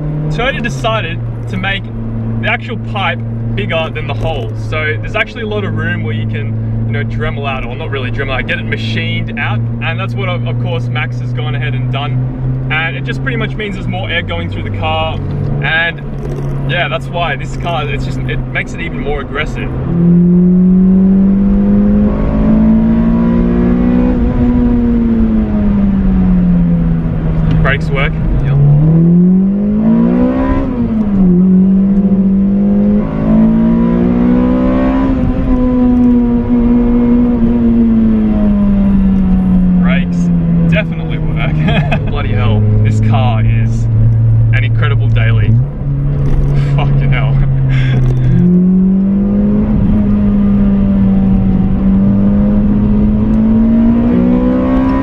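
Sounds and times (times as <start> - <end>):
car engine accelerating: 0.0 - 55.0.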